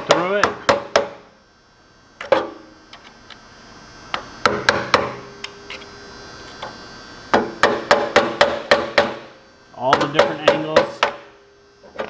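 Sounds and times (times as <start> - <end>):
hammer striking a screwdriver: 7.3 - 9.2, 9.9 - 11.3.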